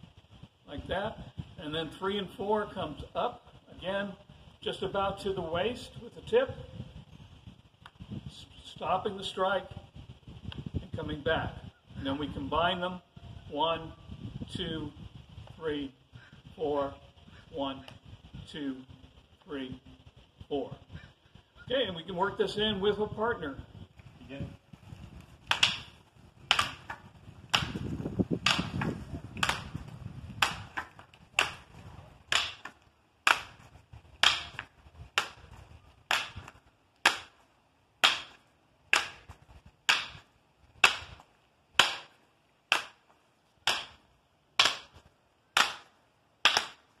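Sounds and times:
wooden sticks clacking: 0:25.4 - 0:29.8, 0:30.4 - 0:37.4, 0:38.0 - 0:47.0.

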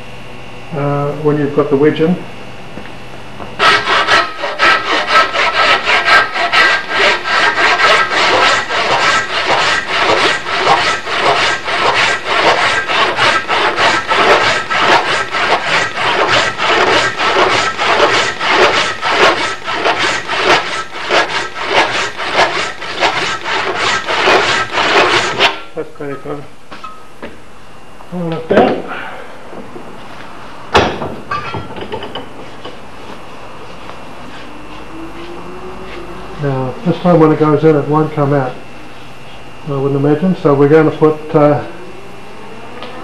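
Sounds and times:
hand saw cutting wood: 0:03.6 - 0:25.7.

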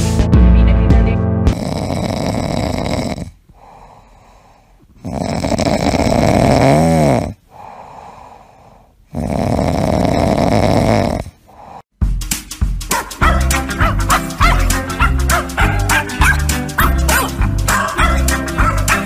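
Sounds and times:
cat snoring: 0:01.5 - 0:11.8
quiet breaths: 0:03.2 - 0:06.2, 0:07.3 - 0:11.9.

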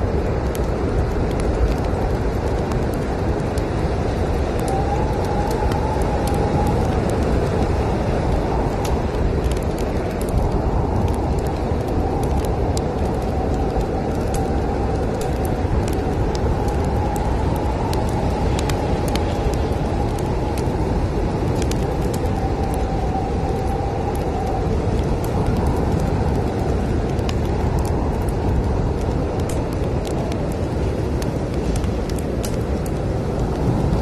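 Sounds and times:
faint wind whistling: 0:00.0 - 0:34.0
heavy storm wind rumble: 0:00.0 - 0:34.0
wood fire crackling: 0:00.0 - 0:34.0.

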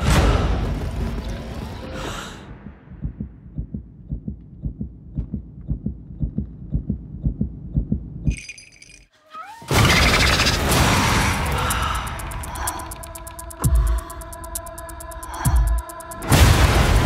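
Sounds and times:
heartbeat-like thumping pulse: 0:02.5 - 0:08.3, 0:11.2 - 0:16.8
high ringing tone: 0:08.3 - 0:09.1
sudden loud hit: 0:16.3 - 0:17.0.

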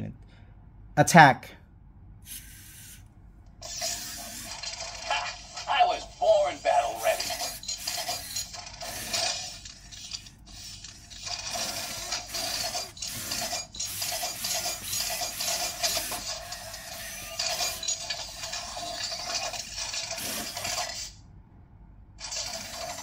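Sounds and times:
servo motors whirring: 0:03.6 - 0:21.1.

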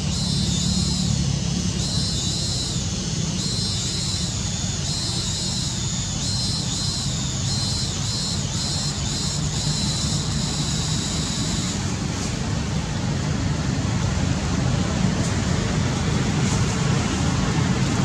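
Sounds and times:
high pulsing drone: 0:00.0 - 0:13.2.

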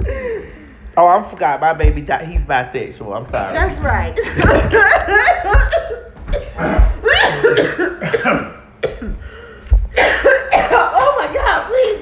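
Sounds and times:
woman coughing: 0:04.3 - 0:09.2, 0:09.9 - 0:11.2.

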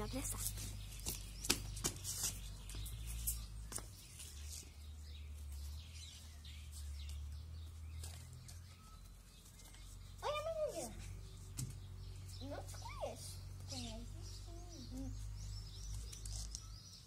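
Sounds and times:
faint bird chirps: 0:00.0 - 0:17.0
footsteps on concrete: 0:00.2 - 0:08.6.

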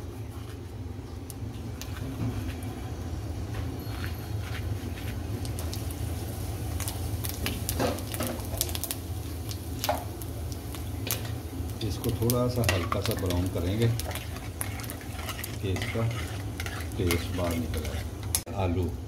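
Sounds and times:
seeds crackling in hot oil: 0:00.0 - 0:03.1, 0:03.9 - 0:18.9
steady low hum: 0:00.0 - 0:19.0.

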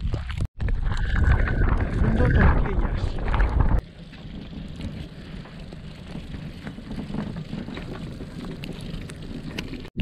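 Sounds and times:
wind rushing over microphone: 0:00.6 - 0:03.8.

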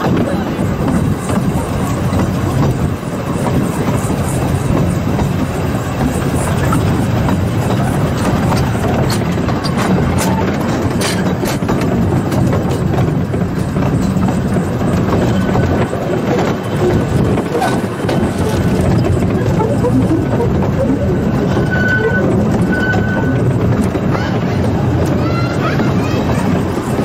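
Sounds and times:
train wheels on rails: 0:00.0 - 0:27.0.

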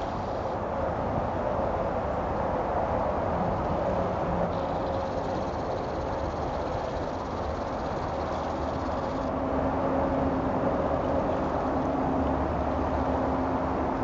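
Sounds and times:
distant engine drone: 0:04.4 - 0:14.0.

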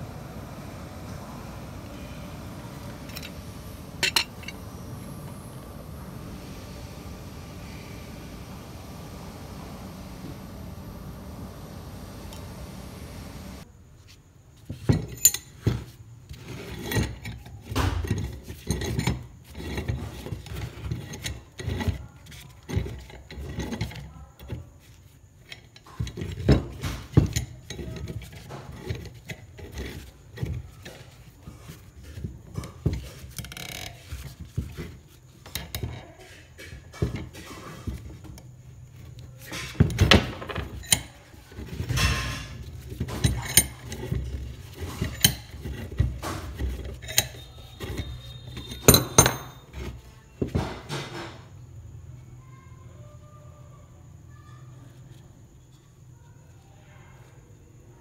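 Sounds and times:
clamp screw threads scraping: 0:03.0 - 0:04.6, 0:40.5 - 0:49.7.

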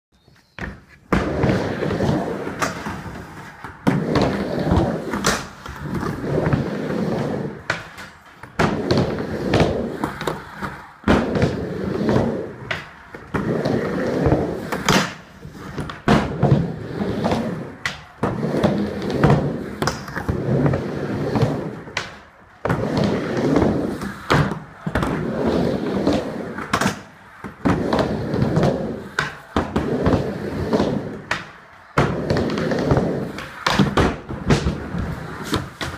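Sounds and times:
skateboard wheels rolling on ramp: 0:00.2 - 0:35.9
skateboard knocks: 0:07.6 - 0:25.3, 0:26.0 - 0:35.9.

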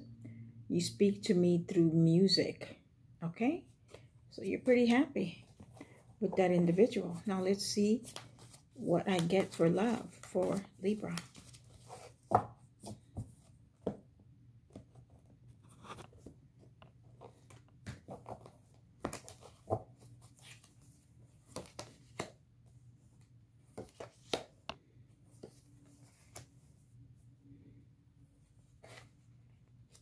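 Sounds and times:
cards being shuffled: 0:08.0 - 0:13.3, 0:23.7 - 0:24.6.

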